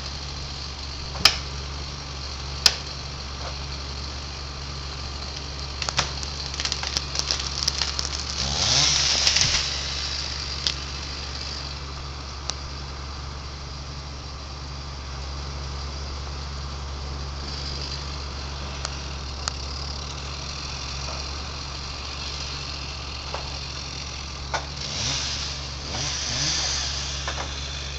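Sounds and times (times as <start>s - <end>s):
engine idling and revving: 0.0s - 27.9s
exhaust crackling: 0.0s - 27.9s.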